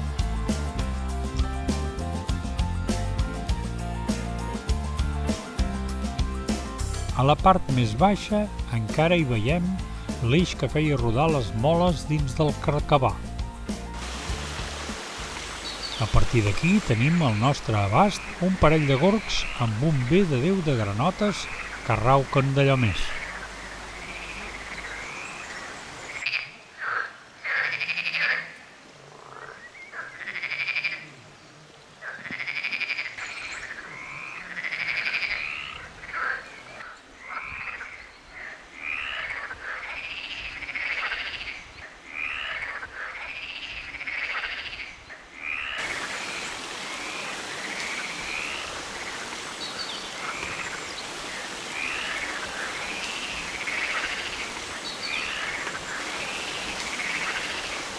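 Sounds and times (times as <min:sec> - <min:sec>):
steady hiss: 0:13.0 - 0:26.2, 0:45.8 - 0:57.9
frogs croaking chorus: 0:15.0 - 0:57.9.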